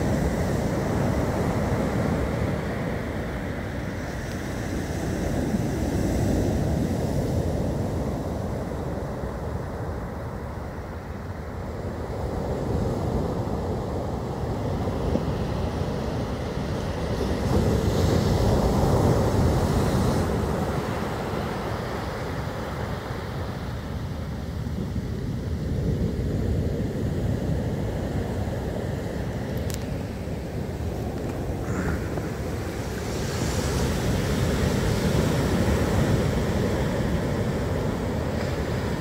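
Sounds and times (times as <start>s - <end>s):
strong wind: 0.0s - 39.0s
wind buffeting microphone: 11.7s - 39.0s
surf breaking on beach: 27.8s - 39.0s.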